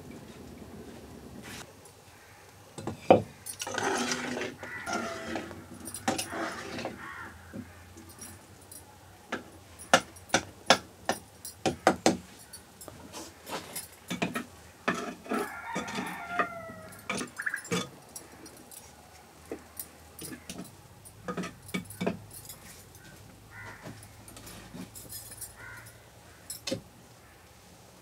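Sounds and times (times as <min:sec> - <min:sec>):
birds calling: 0:16.6 - 0:18.5.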